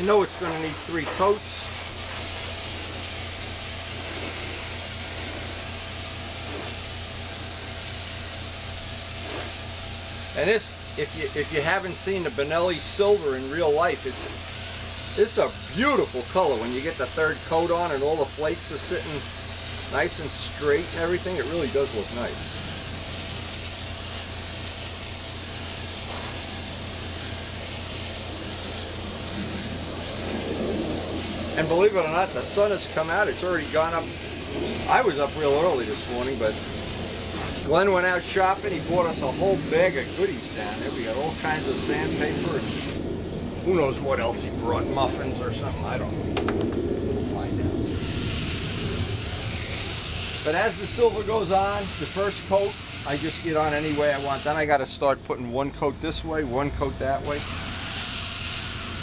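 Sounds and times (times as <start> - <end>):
spray paint hissing: 0.0 - 43.0, 47.8 - 54.7, 57.2 - 59.0
low steady hum: 25.6 - 50.1.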